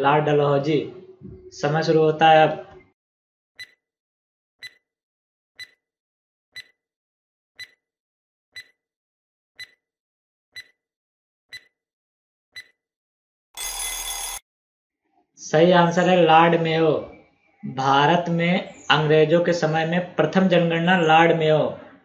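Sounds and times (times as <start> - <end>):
countdown timer ticking: 8.6 - 8.8, 10.6 - 10.8, 11.5 - 11.7
harsh time's-up buzzer: 13.6 - 14.4.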